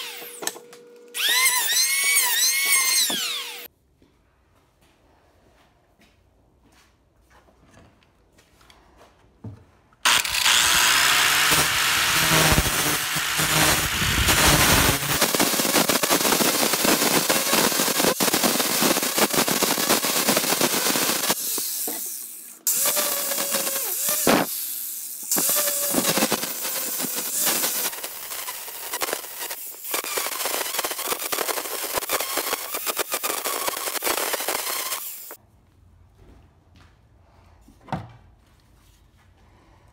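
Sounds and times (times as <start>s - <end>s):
angle grinder grinding wood: 1.2s - 3.7s, 10.1s - 35.4s.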